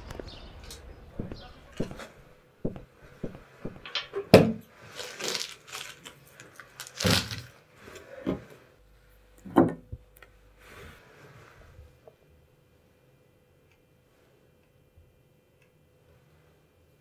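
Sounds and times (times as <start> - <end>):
sharp knocks: 1.1 - 4.6
packaging rustling: 4.8 - 7.6.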